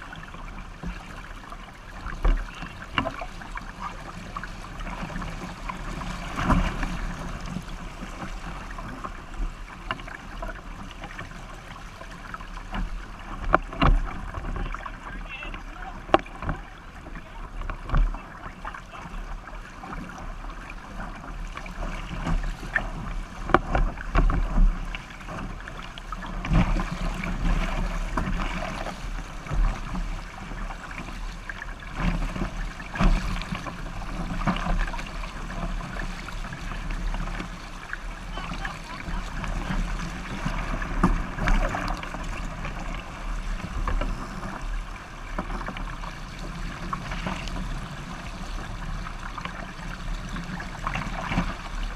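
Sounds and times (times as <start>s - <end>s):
hull slapping waves: 0.0s - 51.9s
water rushing along hull: 0.0s - 51.9s.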